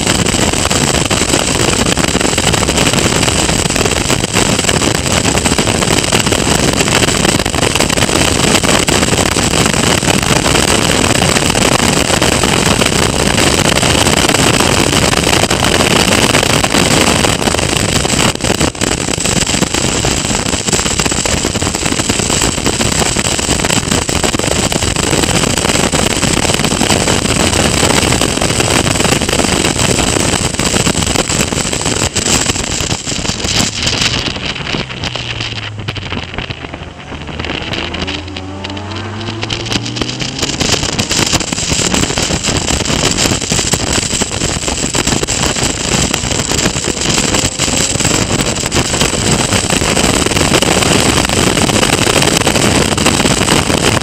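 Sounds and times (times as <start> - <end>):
wind buffeting open car: 0.0 - 54.0
race car engine: 31.9 - 54.0.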